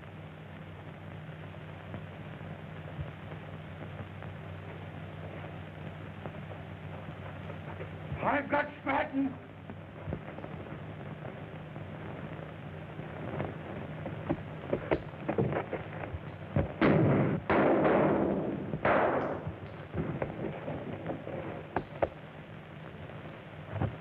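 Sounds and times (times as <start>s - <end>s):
film soundtrack hiss: 0.0s - 24.0s
loud crashing bangs: 16.8s - 20.3s.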